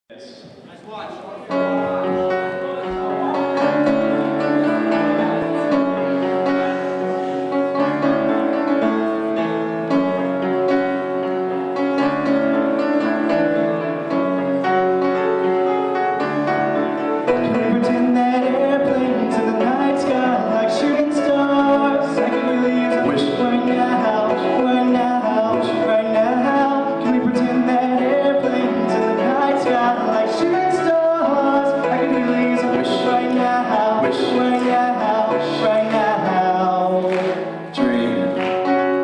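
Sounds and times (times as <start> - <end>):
upright piano chords: 1.4 - 39.0
man singing into a microphone: 17.3 - 38.6.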